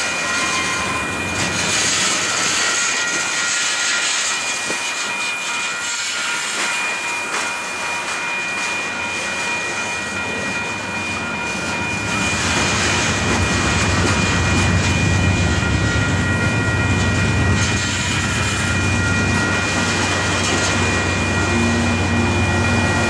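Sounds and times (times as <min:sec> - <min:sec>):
high-pitched ringing tone: 0:00.0 - 0:23.0
train wheels rumbling on rails: 0:00.0 - 0:23.0.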